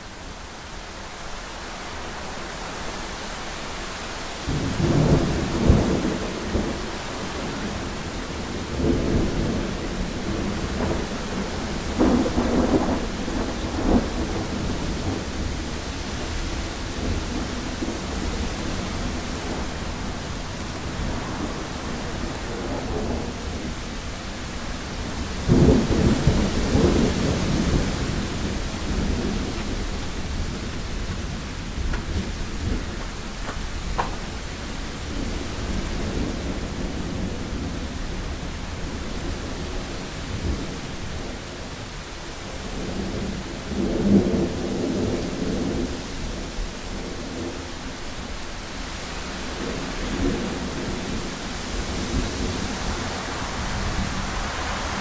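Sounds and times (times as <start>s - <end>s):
steady rain: 0.0s - 55.0s
thunder rumbling: 4.4s - 41.6s.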